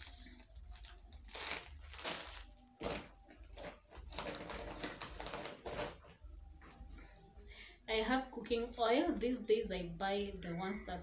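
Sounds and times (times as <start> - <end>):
plastic packaging crinkling: 0.2 - 6.1.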